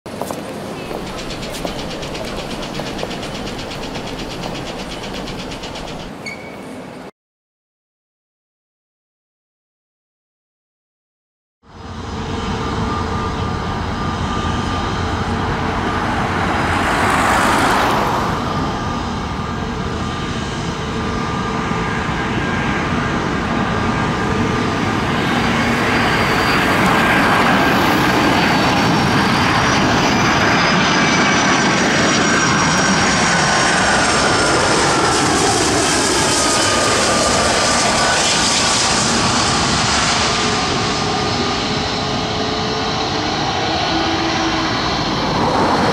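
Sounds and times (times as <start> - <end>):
jet engine rumble with whine: 0.1 - 7.0, 11.7 - 45.9.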